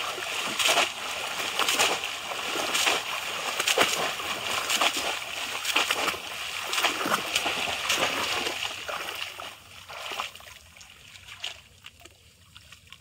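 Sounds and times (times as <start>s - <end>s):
fish traps plunging into water: 0.0s - 10.2s
people wading through water: 0.0s - 13.0s.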